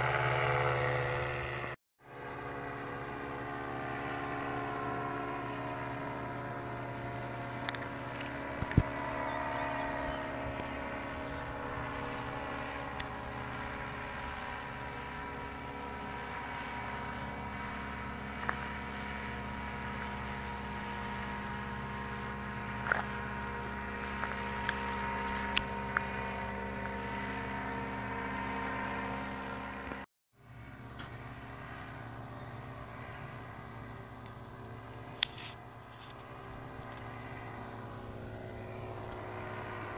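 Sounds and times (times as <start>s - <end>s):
paramotor engine drone overhead: 0.0s - 39.9s.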